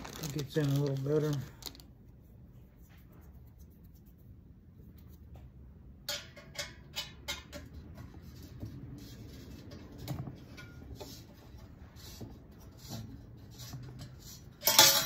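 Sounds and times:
metal scraping: 6.1 - 15.0.

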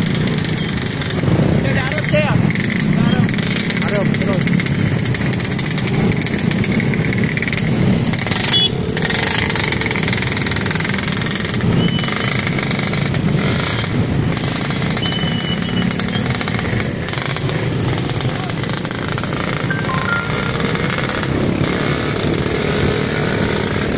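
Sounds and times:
motorcycle engines running: 0.0 - 23.9
short high-pitched beeps: 8.5 - 8.7, 19.7 - 21.0.

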